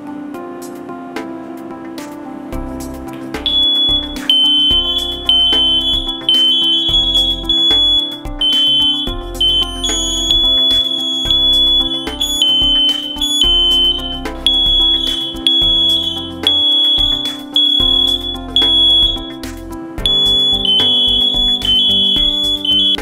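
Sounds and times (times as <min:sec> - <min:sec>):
background music with beat: 0:00.0 - 0:23.0
smoke alarm beeping: 0:03.4 - 0:19.4, 0:20.0 - 0:23.0.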